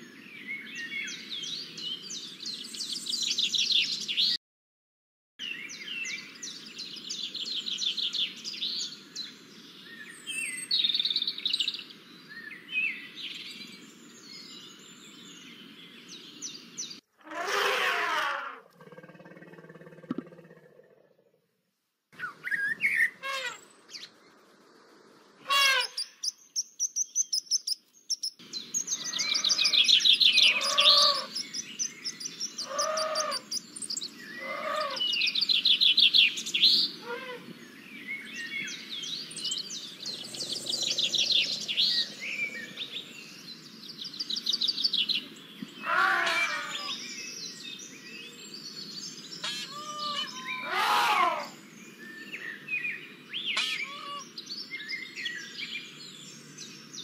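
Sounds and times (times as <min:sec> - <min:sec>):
birds calling and singing: 0:00.0 - 0:04.4, 0:05.4 - 0:17.1, 0:22.2 - 0:24.4, 0:25.5 - 0:57.0
steady background hiss: 0:21.6 - 0:27.2.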